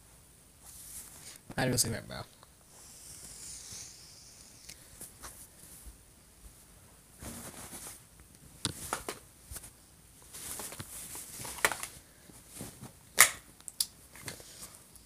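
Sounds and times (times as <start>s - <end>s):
person exhaling smoke: 2.7s - 5.1s
person taking a long drag: 2.7s - 5.4s.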